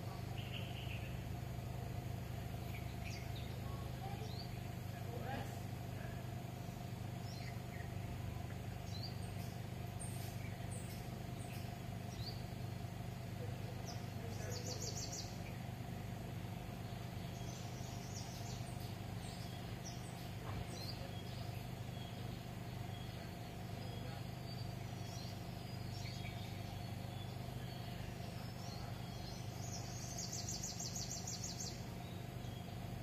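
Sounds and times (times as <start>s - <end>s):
low background hum: 0.0s - 33.0s.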